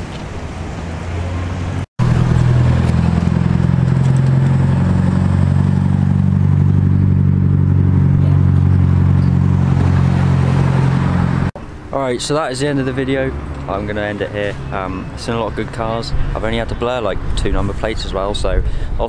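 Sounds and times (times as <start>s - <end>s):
car engine running: 1.1s - 11.5s.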